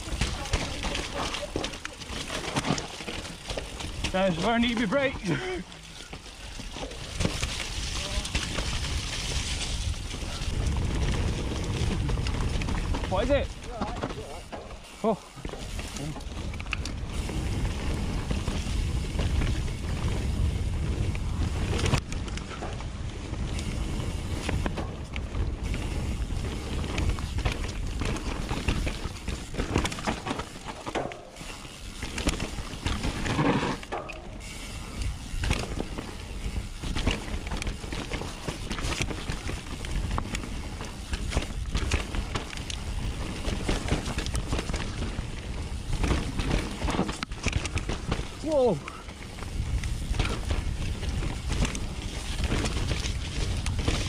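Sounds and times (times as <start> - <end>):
bike frame and chain clatter: 0.0 - 54.0
tyres rolling over dirt and rocks: 0.0 - 54.0
wind rush on microphone: 7.6 - 13.5, 16.4 - 29.8, 47.5 - 54.0.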